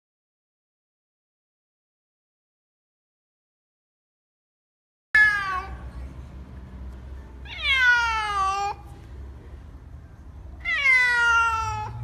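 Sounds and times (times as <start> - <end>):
cat meowing: 5.2 - 5.8, 7.4 - 8.9, 10.6 - 12.0.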